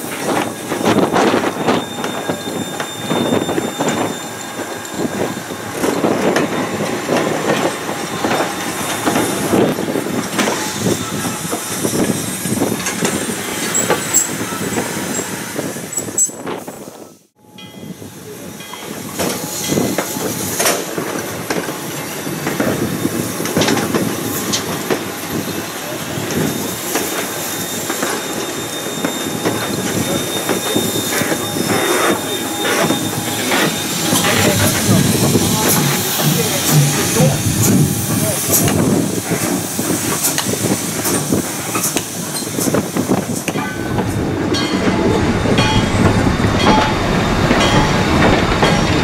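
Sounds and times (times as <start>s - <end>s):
train wheels clattering on rails: 0.0s - 17.0s, 18.4s - 49.0s
faint high squeal: 1.5s - 5.6s, 25.8s - 35.6s.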